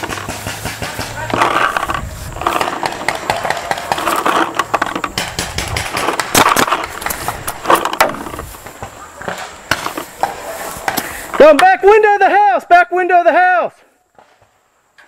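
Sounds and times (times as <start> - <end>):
distant shouting voices: 0.0 - 5.2, 8.7 - 14.0
paintball markers firing: 0.0 - 11.7.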